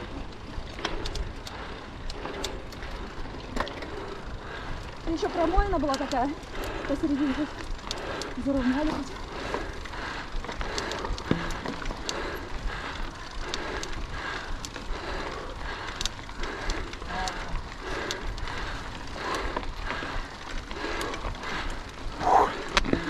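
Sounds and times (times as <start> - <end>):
bike clicks and rattles: 0.0 - 23.0
bike tyre noise on dirt: 0.0 - 23.0.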